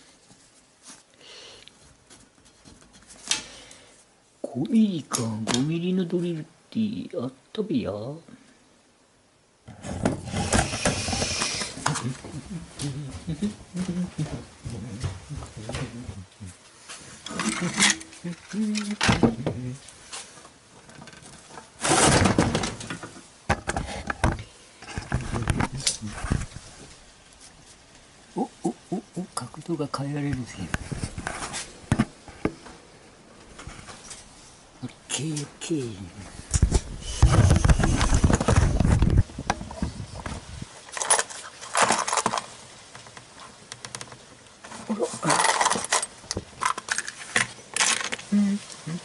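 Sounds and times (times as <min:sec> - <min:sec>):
metal scraping: 0:17.2 - 0:18.9.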